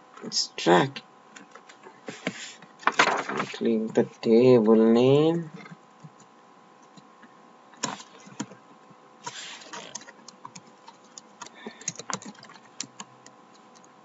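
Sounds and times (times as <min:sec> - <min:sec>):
computer keyboard key clicks: 0:09.8 - 0:13.9.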